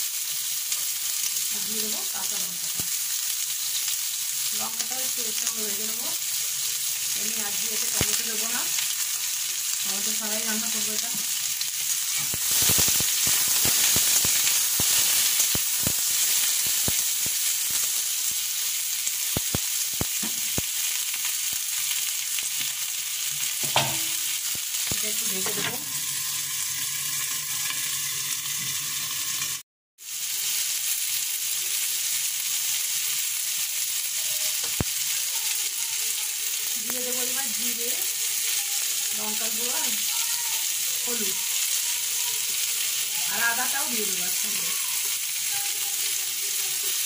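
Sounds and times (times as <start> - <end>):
vegetables sizzling in hot oil: 0.0 - 47.0.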